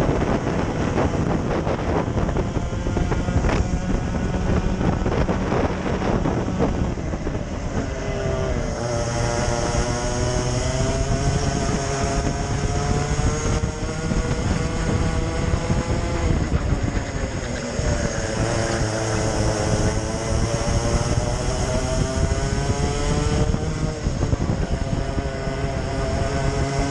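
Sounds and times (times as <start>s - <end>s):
kart engine running hard: 0.0s - 26.9s
wind on microphone: 0.0s - 26.9s.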